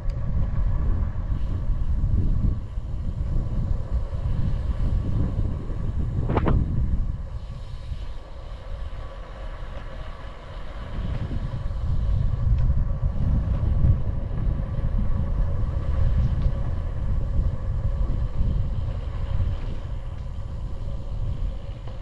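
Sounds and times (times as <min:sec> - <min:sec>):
wind rushing over microphone: 0:00.0 - 0:22.0.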